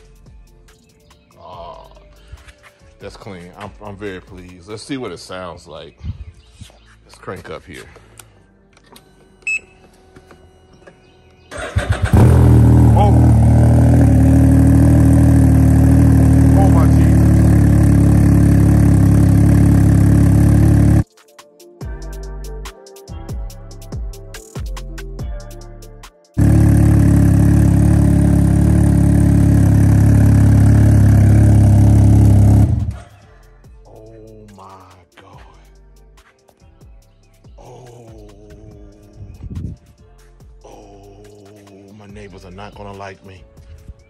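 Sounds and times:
engine cranking: 11.5s - 13.4s
engine idling loudly: 12.1s - 21.0s, 26.4s - 33.0s.

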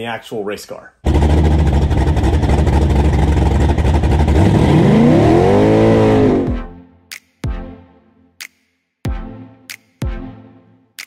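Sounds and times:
race car engine revving: 1.0s - 6.6s.

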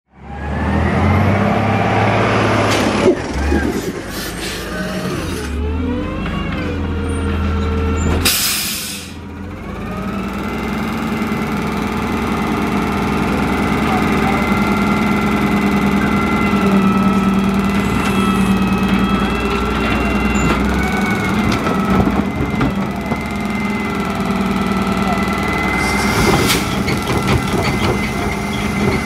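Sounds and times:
garbage truck diesel engine: 0.1s - 29.0s
air brake hiss: 8.2s - 9.2s, 25.8s - 26.7s.

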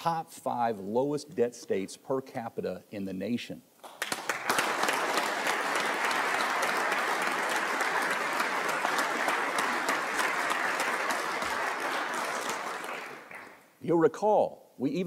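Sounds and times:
crowd applauding: 3.8s - 13.7s.

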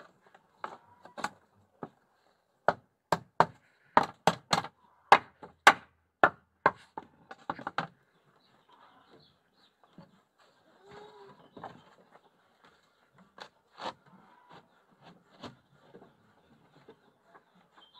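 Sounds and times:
sharp knocks on wood: 2.7s - 7.9s.

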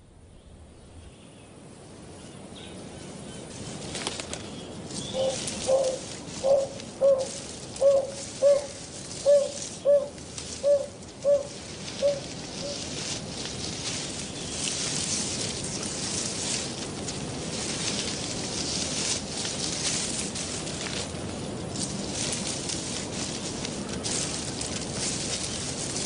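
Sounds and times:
bird hooting softly: 5.0s - 13.0s.

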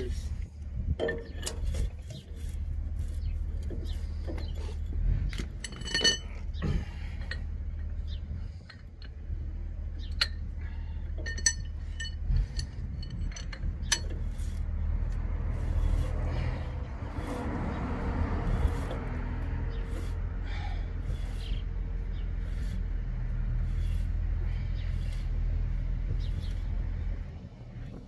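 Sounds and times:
steady low hum: 0.0s - 28.0s
metal tools clinking and knocking: 1.0s - 2.3s, 3.6s - 9.2s, 10.0s - 14.6s.

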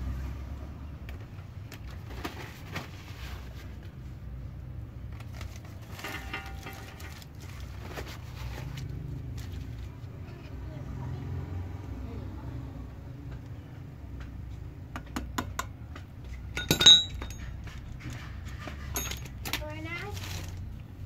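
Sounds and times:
roller chain clinking and rattling: 5.6s - 7.8s, 16.5s - 20.5s.

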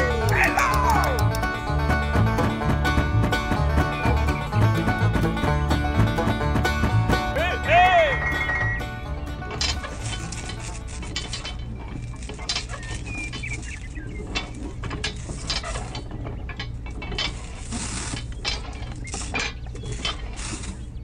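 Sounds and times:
clicks and scrapes of handling: 9.5s - 21.0s.

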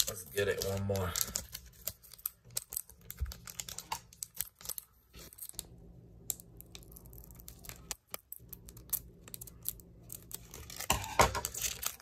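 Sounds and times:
foil wrapper crinkling: 0.0s - 12.0s.

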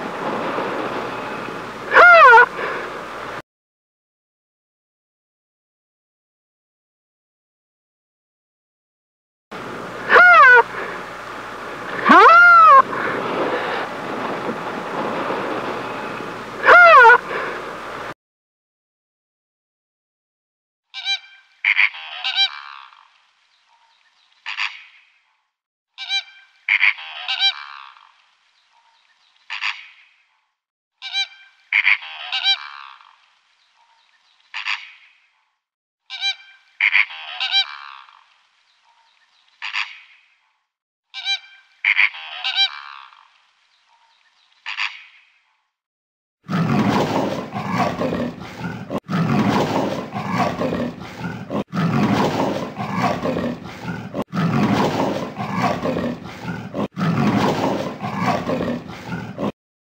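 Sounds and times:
honking animal calls: 1.9s - 2.8s, 9.6s - 15.0s, 15.7s - 17.8s, 26.0s - 27.8s, 31.0s - 32.8s, 36.1s - 37.9s, 41.2s - 43.0s, 46.5s - 59.5s
loud rough continuous sound: 9.6s - 18.1s.

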